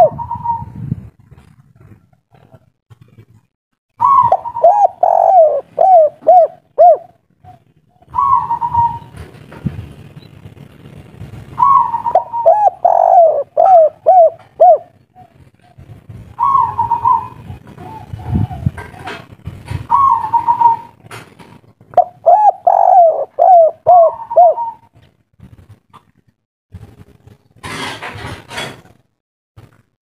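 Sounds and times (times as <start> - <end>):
dove cooing: 0.0 - 0.8, 4.0 - 9.3, 11.6 - 21.0, 22.0 - 25.0.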